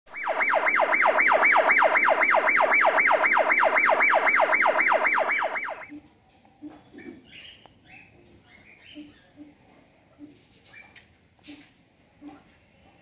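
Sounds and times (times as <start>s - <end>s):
siren-like wailing tone: 0.1s - 5.9s.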